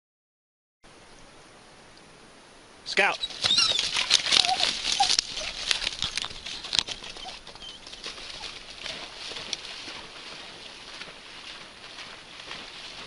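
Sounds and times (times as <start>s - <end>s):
dry grass and brush rustling: 3.0s - 13.0s
scattered ticks: 3.3s - 9.7s.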